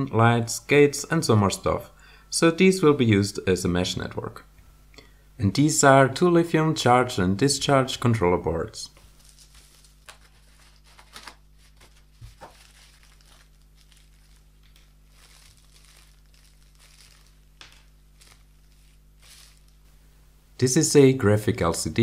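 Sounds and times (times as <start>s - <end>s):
steady low hum: 0.0s - 22.0s
plastic packaging crinkling: 9.0s - 20.0s.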